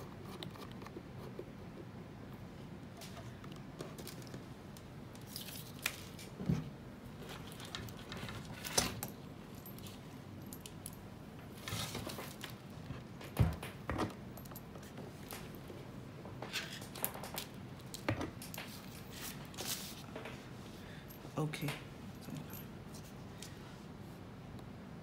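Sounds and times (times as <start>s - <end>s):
cable rustling: 2.9s - 6.5s, 7.1s - 15.8s, 16.4s - 23.7s.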